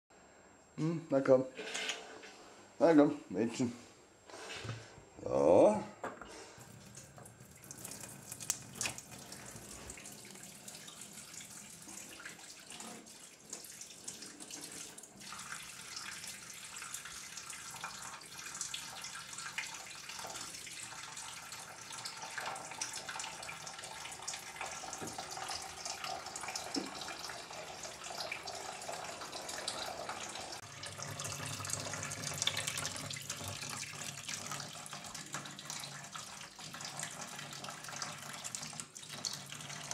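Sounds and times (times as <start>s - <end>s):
tap water trickling into sink: 6.6s - 39.9s.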